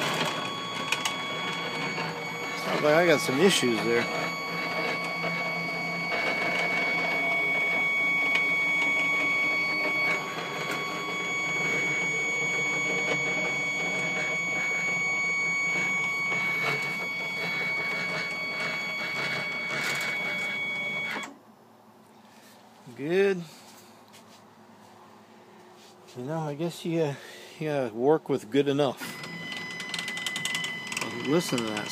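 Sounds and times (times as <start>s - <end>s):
stepper motor whining and rattling: 0.0s - 21.3s, 29.0s - 31.9s.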